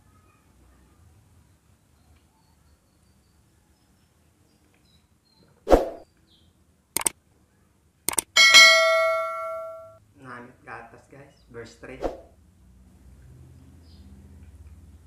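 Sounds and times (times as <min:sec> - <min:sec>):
mouse clicks: 0:08.1 - 0:08.3.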